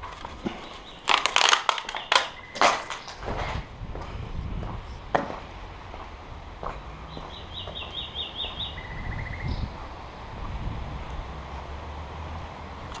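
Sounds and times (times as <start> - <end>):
footsteps crunching over debris: 0.0 - 8.0
wind rumbling on microphone: 2.4 - 13.0.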